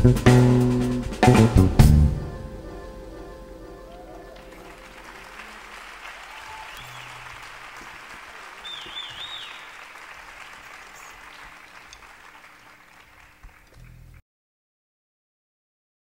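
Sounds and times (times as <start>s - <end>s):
audience applauding: 3.8s - 14.0s
person whistling: 6.4s - 7.3s, 8.6s - 9.7s.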